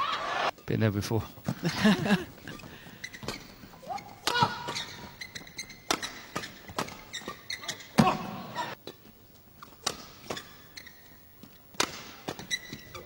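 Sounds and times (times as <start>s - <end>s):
shoes squeaking on court: 1.4s - 13.0s
racket hitting shuttlecock: 3.1s - 9.0s, 9.6s - 13.0s.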